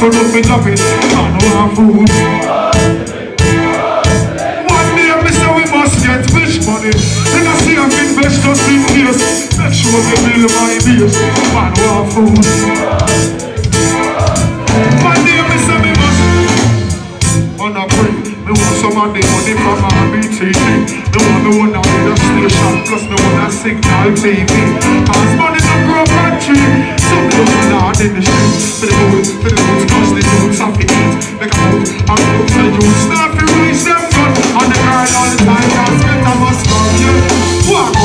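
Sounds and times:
man singing: 0.0s - 3.7s, 4.4s - 14.0s, 14.7s - 16.6s, 17.4s - 38.0s
live reggae band playing: 0.0s - 38.0s.

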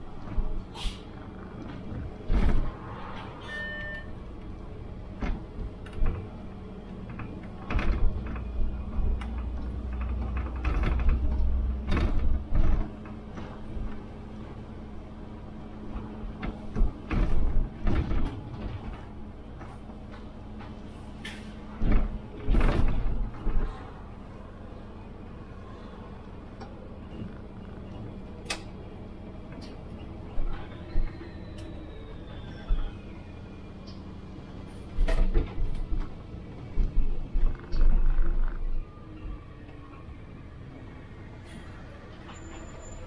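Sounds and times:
low rumble: 0.0s - 20.6s
bus interior hum: 0.0s - 43.0s
short electronic beep: 3.4s - 4.2s
knocks and rattles: 7.0s - 14.0s, 15.9s - 20.8s.

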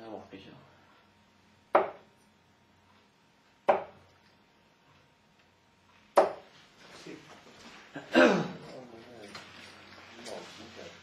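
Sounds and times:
darts thudding into dartboard: 1.7s - 2.0s, 3.6s - 4.0s, 6.2s - 6.5s.

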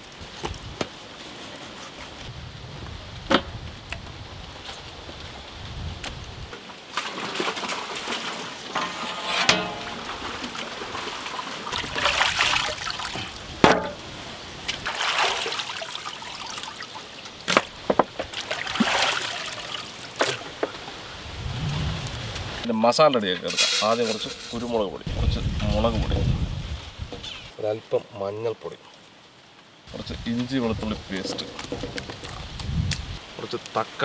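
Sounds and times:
water sloshing and splashing: 6.5s - 22.6s.

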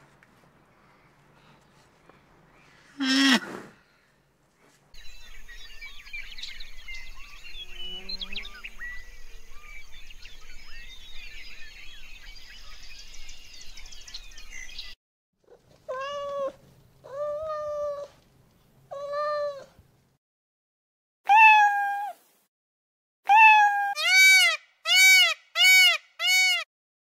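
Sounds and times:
outdoor chirping: 4.9s - 15.0s
cat meowing: 15.9s - 18.1s, 18.9s - 19.7s, 21.3s - 22.2s, 23.3s - 24.0s.

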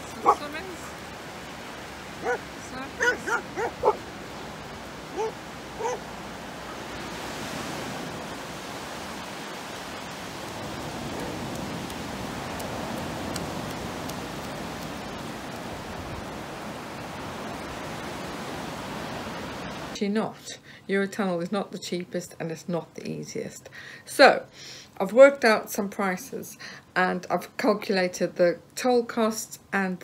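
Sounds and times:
surf washing up a beach: 0.0s - 20.0s
dog whining: 3.0s - 4.0s, 5.1s - 6.0s.

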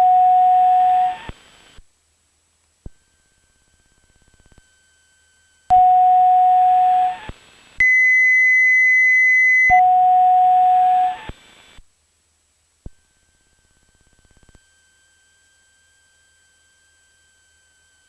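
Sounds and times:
high piercing electronic tone: 0.0s - 1.3s, 5.7s - 7.3s, 8.1s - 11.3s
mid-pitched electronic tone: 0.0s - 1.3s, 9.5s - 11.3s.

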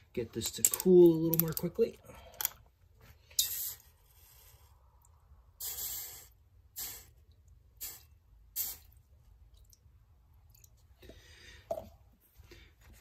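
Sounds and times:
water hissing on hot metal: 5.6s - 7.2s, 7.8s - 8.9s.

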